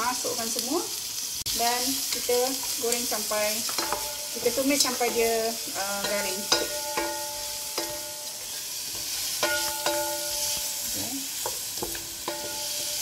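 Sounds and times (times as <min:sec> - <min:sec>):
onions sizzling in a pot: 0:00.0 - 0:13.0
spatula knocking against metal pot: 0:03.7 - 0:04.2, 0:06.0 - 0:08.2, 0:09.4 - 0:10.4, 0:11.4 - 0:12.6.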